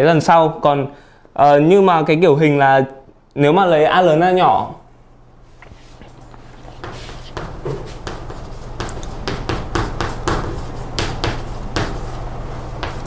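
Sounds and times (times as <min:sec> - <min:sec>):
low electrical hum: 0:00.0 - 0:13.0
chalk tapping and scraping on board: 0:06.7 - 0:13.0.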